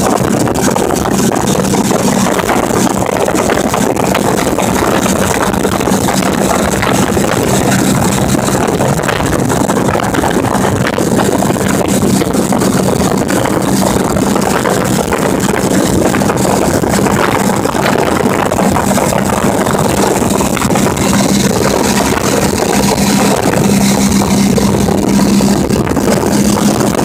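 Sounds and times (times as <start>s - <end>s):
motorcycle engine hum: 0.0s - 27.0s
wind and road noise: 0.0s - 27.0s.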